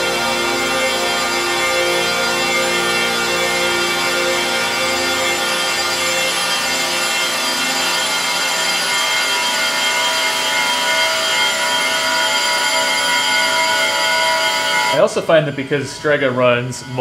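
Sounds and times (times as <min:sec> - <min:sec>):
synth feedback hissing wash: 0:00.0 - 0:17.0.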